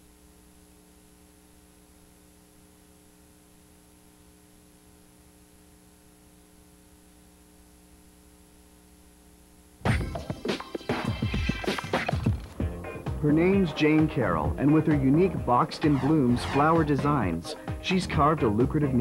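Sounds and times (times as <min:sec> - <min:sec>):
faint electrical hum: 0:00.0 - 0:10.4.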